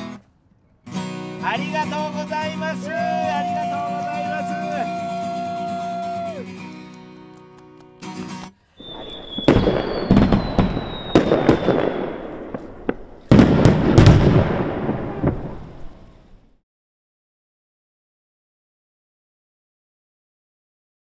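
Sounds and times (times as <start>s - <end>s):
firework whistle: 3.1s - 6.6s, 8.7s - 13.4s
firework bangs: 8.8s - 16.5s.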